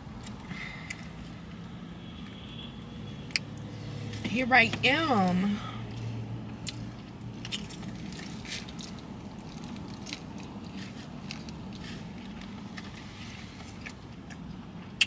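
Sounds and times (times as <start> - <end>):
person chewing food: 5.9 - 15.0.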